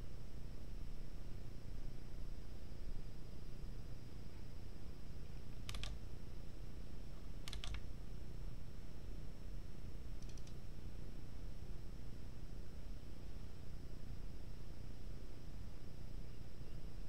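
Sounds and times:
faint high electronic whine: 0.0 - 17.0
steady low hum: 0.0 - 17.0
keyboard keys clicking: 5.7 - 6.0, 7.4 - 7.8, 10.2 - 10.6.

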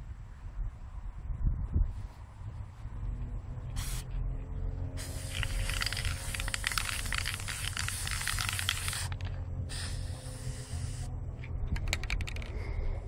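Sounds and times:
spray-paint can hissing: 3.8 - 4.1, 5.0 - 11.1.

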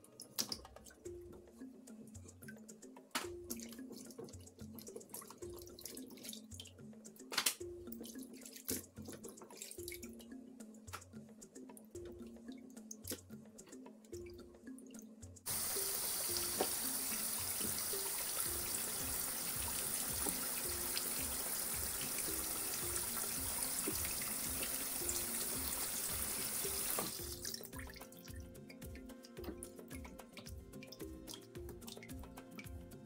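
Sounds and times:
water drips and splashes: 3.2 - 10.3, 15.5 - 32.8
tap water running into sink: 15.5 - 28.0.

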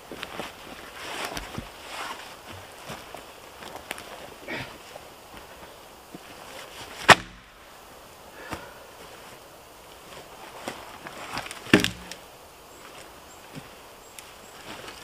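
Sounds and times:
tree trunk cracking: 7.0 - 7.6, 11.0 - 12.3
trunk knocking against log: 7.1 - 7.4, 11.7 - 12.2.

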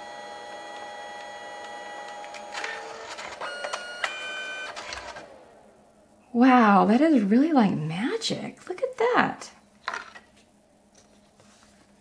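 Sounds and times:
printer motor whining: 0.0 - 5.8.

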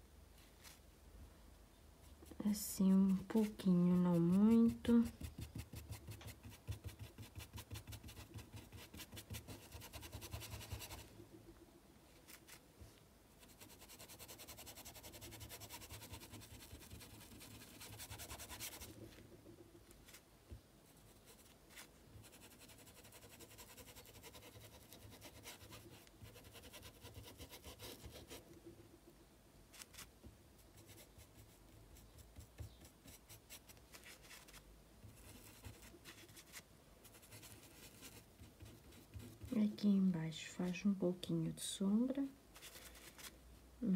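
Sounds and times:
paintbrush scratching on fabric: 2.1 - 11.3, 13.4 - 19.2, 20.8 - 28.8, 29.7 - 39.8.

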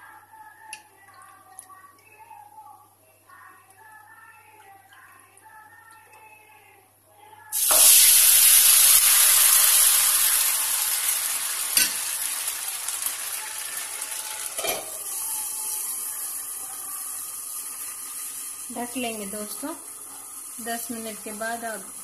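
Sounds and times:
batter sizzling in a frying pan: 7.5 - 22.0.

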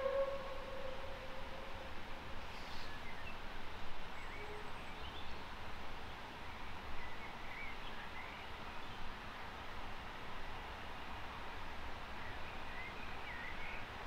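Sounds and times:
steam locomotive whistle: 0.0 - 1.6.

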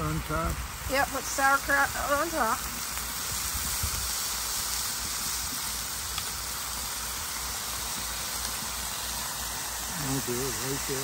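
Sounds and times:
meat sizzling on a griddle: 0.0 - 11.0.

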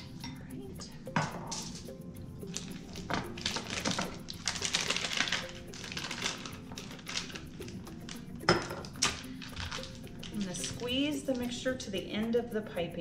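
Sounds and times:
quiet background music: 0.0 - 13.0
plastic bag crinkling: 2.4 - 11.7.

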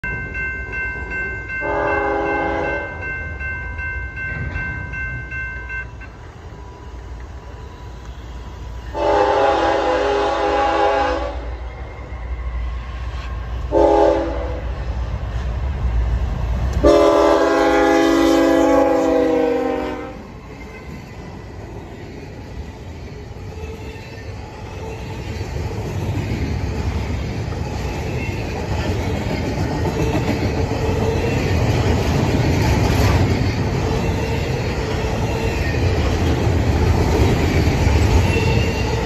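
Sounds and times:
locomotive air horn blasts: 1.6 - 2.9, 8.9 - 11.5, 13.7 - 14.6, 16.8 - 20.3.

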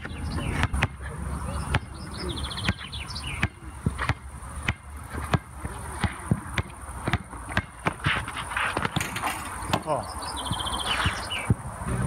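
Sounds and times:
basketball bouncing on hard court: 0.0 - 1.0, 2.6 - 9.9
bird chirping: 0.0 - 4.6, 9.4 - 11.6.

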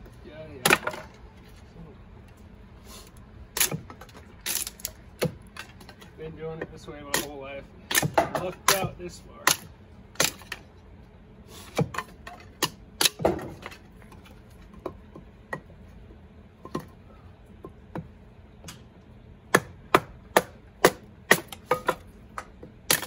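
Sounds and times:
hatchet chopping kindling on wood: 3.6 - 6.0, 7.1 - 10.6, 11.7 - 13.8, 19.5 - 23.0.

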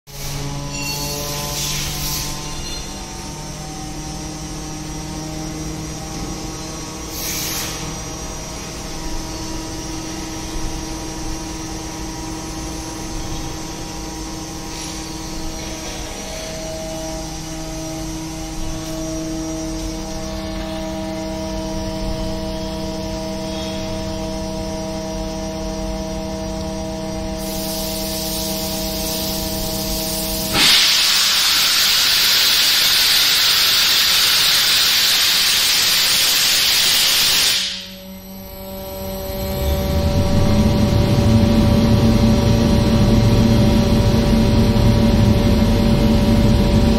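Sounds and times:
loud hiss of air: 0.1 - 21.2, 27.2 - 38.0
air compressor humming: 0.1 - 46.9.

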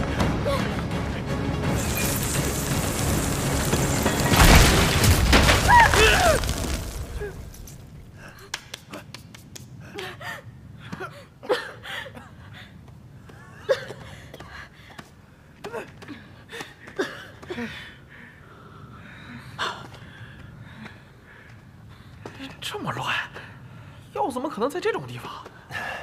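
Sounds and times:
people gasping and breathing hard: 8.1 - 22.5.

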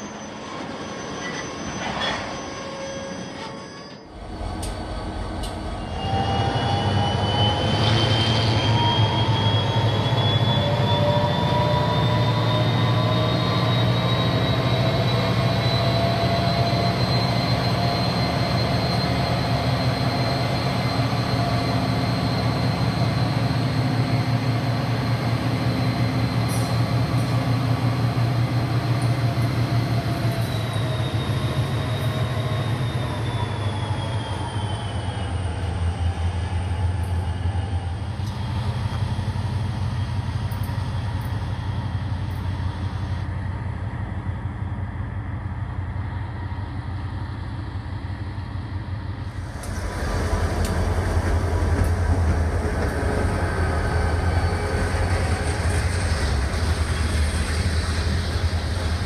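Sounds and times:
high-pitched squeal: 0.0 - 43.3
diesel locomotive engines rumbling: 0.0 - 59.0.

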